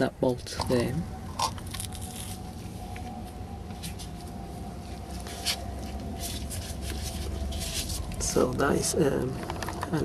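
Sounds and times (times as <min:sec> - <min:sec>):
low steady hum: 0:00.0 - 0:10.0.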